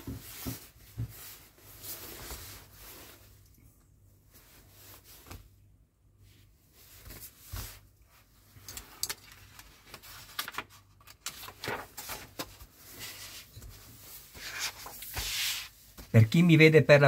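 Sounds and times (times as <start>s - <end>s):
magazine pages rustling: 8.5s - 16.2s.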